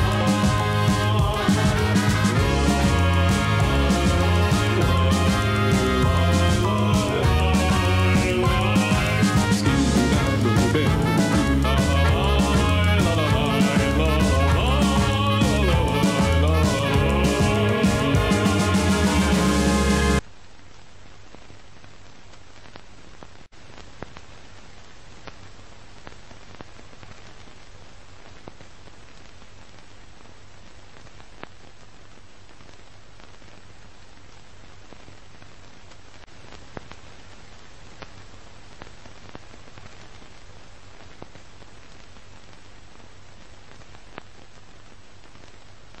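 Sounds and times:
film soundtrack hiss: 0:00.0 - 0:46.0.

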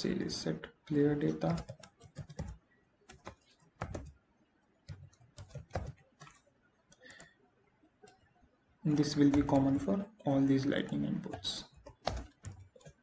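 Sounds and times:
computer keyboard key clicks: 0:01.5 - 0:04.1, 0:09.0 - 0:09.9, 0:11.3 - 0:13.0.

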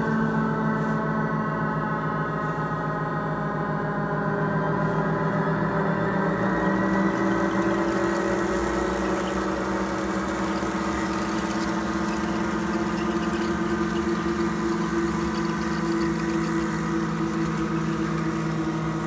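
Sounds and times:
synthesized diesel engine drone: 0:00.0 - 0:19.0.

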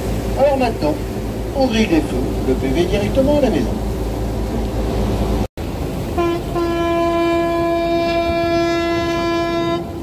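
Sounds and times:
ship's horn blast: 0:06.0 - 0:10.0.

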